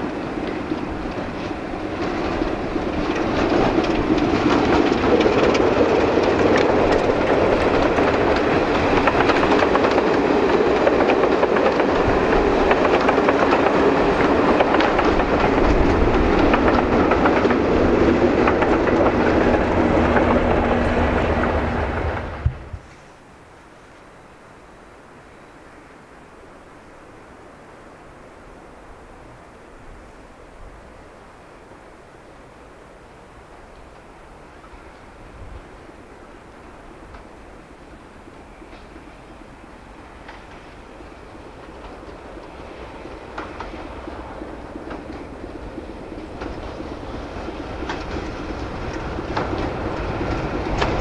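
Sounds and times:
train wheels clattering on rails: 0.0 - 22.9, 33.5 - 51.0
diesel locomotive engine hum: 0.0 - 51.0.

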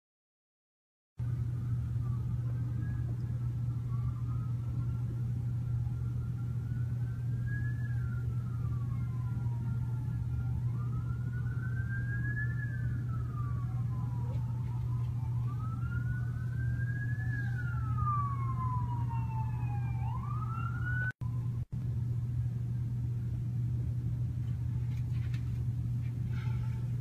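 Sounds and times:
emergency vehicle siren wailing: 1.2 - 21.7, 26.3 - 27.0
steady low hum: 1.2 - 27.0.

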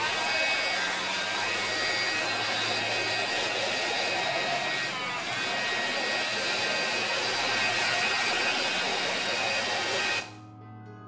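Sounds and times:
heat tool blowing: 0.0 - 10.4.

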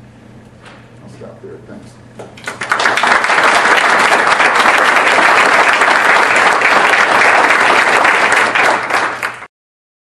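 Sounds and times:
audience applauding: 2.4 - 9.5.

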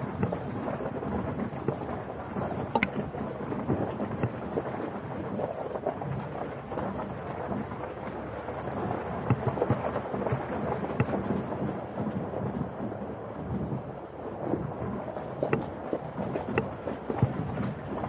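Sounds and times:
tyres rolling over gravel: 0.0 - 18.0
stones clicking: 1.5 - 3.2.

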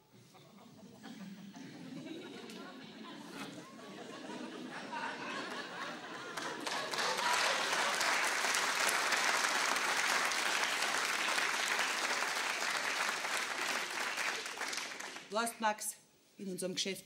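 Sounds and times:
audience applauding: 5.4 - 15.3.

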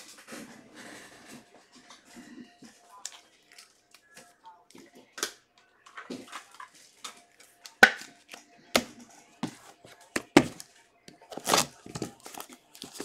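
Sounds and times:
card packs rustling: 9.5 - 13.0.

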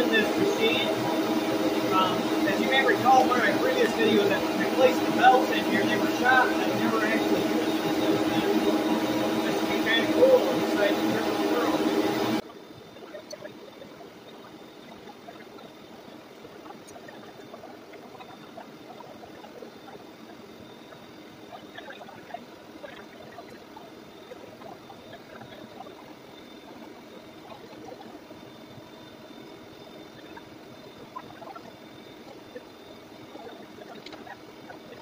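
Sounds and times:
boring mill cutting metal: 0.0 - 12.4
faint high steady tone: 0.0 - 35.0.

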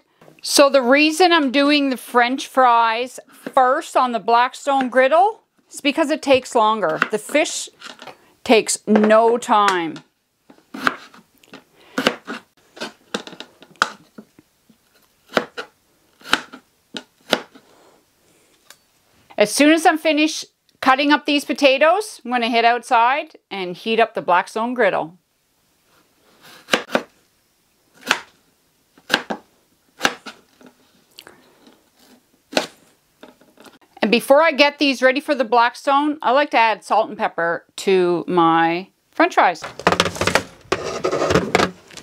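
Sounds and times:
knife chopping on plastic board: 10.8 - 11.2, 12.0 - 13.2, 15.3 - 17.6, 26.6 - 27.1, 29.0 - 29.4, 30.0 - 30.4.

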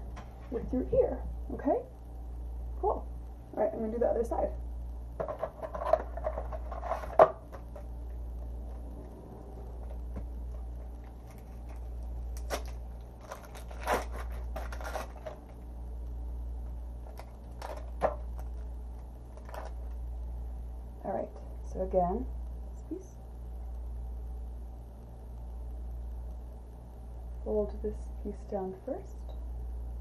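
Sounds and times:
low room hum: 0.0 - 30.0
paper wrapper crinkling and tearing: 9.7 - 15.7, 17.0 - 20.0.

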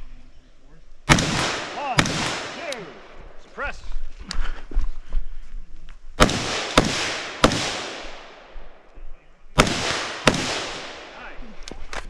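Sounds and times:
gunshots echoing through woods: 1.0 - 3.5, 6.2 - 11.6.

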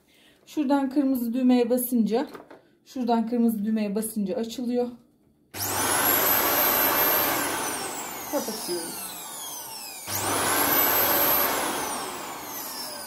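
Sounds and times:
stick vacuum cleaner motor whining: 5.6 - 13.0.

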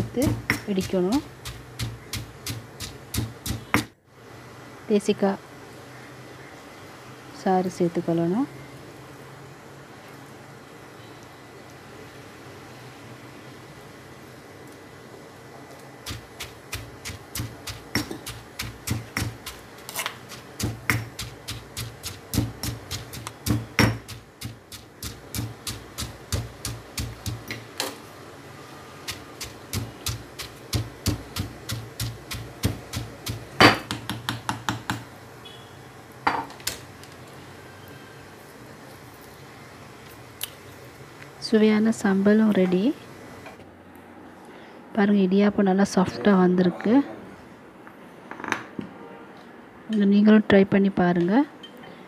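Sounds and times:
pestle pounding in stone mortar: 0.0 - 3.9, 16.1 - 27.6, 29.1 - 35.1.

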